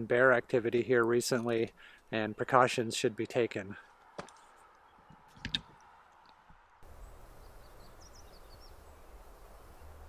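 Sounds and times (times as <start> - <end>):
faint bird chirps: 6.9 - 10.0.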